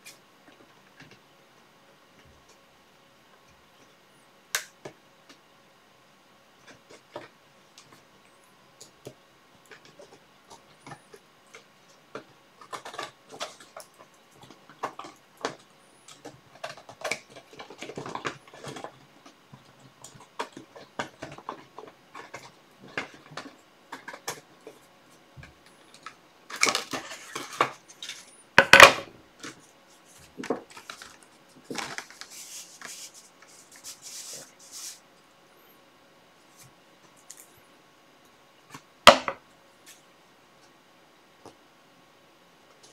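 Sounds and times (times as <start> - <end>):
paper rustling: 29.4 - 35.0.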